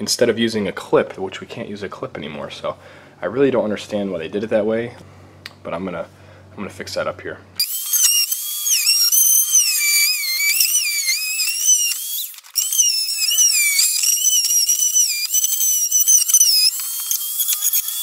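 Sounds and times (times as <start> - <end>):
rotary tool cutting plastic: 7.6 - 18.0.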